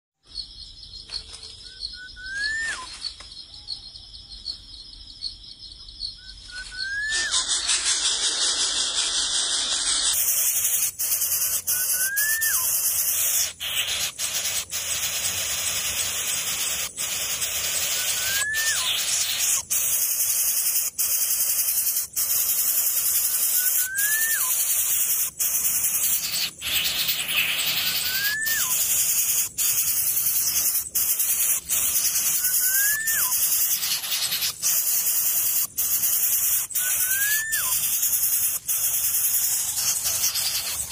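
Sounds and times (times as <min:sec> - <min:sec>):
high-pitched insect drone: 0:00.3 - 0:40.9
rising then falling call: 0:06.3 - 0:14.0, 0:17.7 - 0:19.7, 0:26.6 - 0:29.0, 0:32.1 - 0:33.6, 0:36.6 - 0:38.1.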